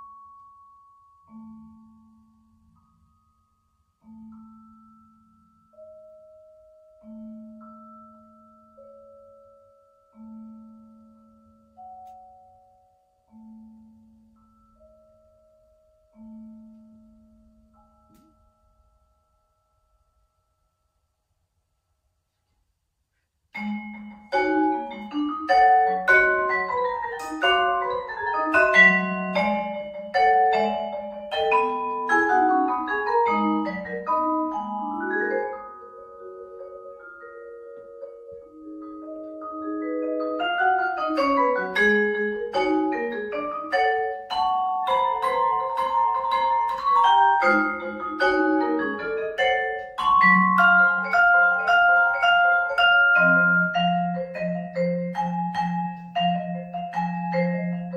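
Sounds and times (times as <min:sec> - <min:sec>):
vibraphone played with mallets: 0:00.0 - 0:21.2, 0:23.6 - 0:57.9.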